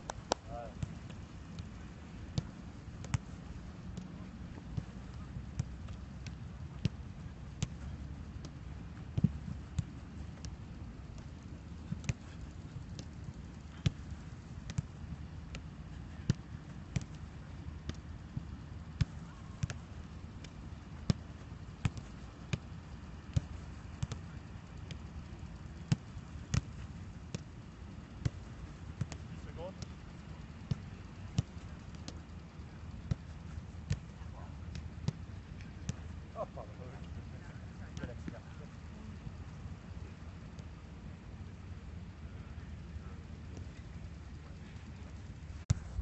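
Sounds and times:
foot kicking football: 0.0s - 36.8s, 43.6s - 46.0s.

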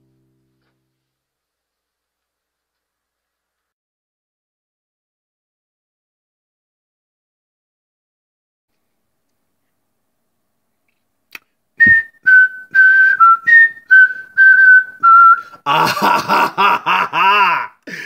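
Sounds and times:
person whistling a tune: 11.8s - 15.6s.

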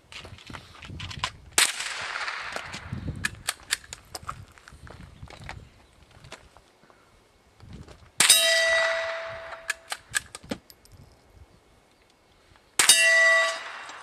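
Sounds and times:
gunshots: 1.6s - 2.8s, 12.8s - 14.0s
steel target ringing clang: 8.2s - 9.8s, 12.8s - 14.0s.

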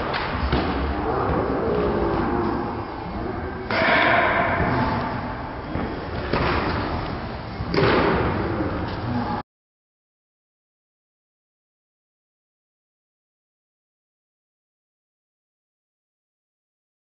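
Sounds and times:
low room noise: 0.0s - 9.4s.

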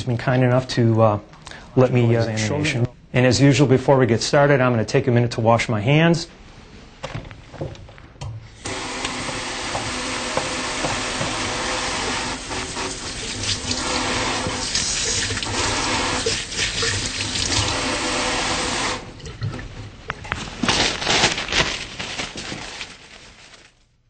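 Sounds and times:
tap water running into sink: 8.6s - 19.6s.

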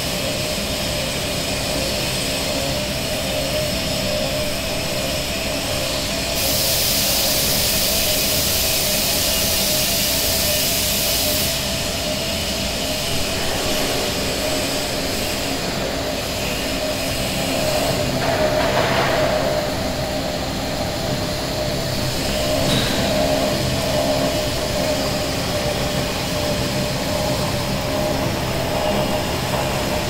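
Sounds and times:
printing press mechanical hum: 0.0s - 30.0s
loud hiss: 4.2s - 29.6s.

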